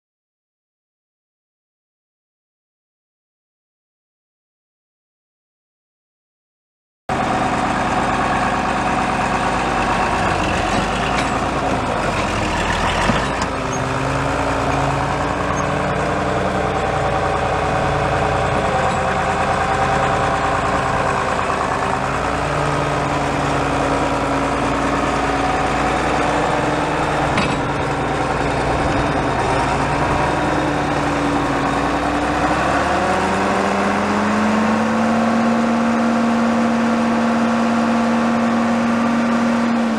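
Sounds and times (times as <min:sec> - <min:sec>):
tractor diesel engine idling: 0:07.1 - 0:33.1.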